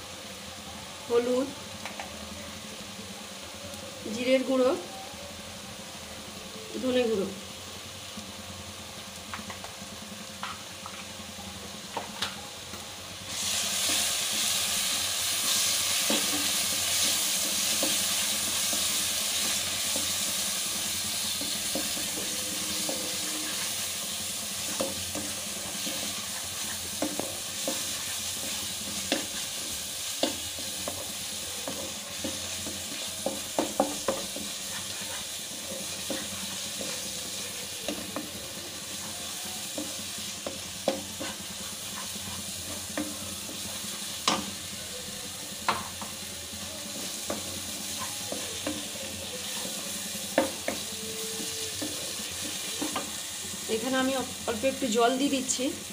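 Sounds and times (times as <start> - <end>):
spices sizzling in oil: 0.0 - 55.9
spatula scraping pan: 15.4 - 44.5.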